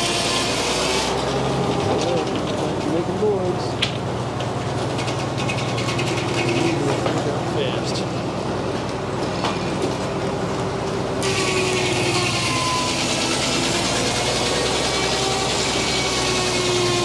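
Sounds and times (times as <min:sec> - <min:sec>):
saw blade cutting wood: 0:00.0 - 0:02.4, 0:05.0 - 0:07.2, 0:11.2 - 0:17.0
circular saw and belt drive running: 0:00.0 - 0:17.0.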